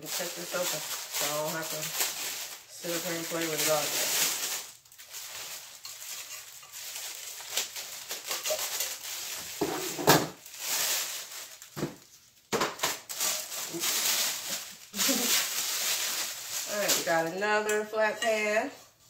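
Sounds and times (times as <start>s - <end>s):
plastic wrap crinkling: 0.0s - 17.4s.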